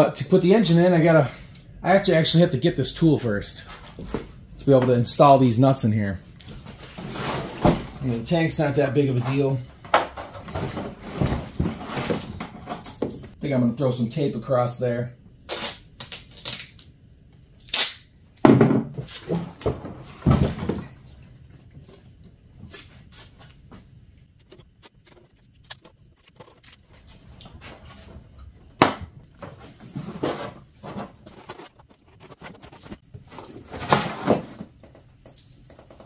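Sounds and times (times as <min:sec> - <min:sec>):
tape ripping off a roll: 0:15.4 - 0:16.9, 0:17.6 - 0:18.1
handling plastic parts and wiring: 0:24.4 - 0:28.2, 0:29.3 - 0:35.0.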